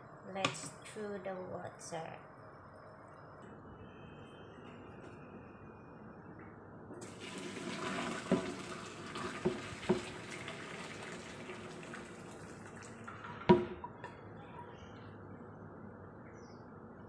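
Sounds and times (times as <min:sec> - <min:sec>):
water pouring into metal sink: 0:07.0 - 0:13.8.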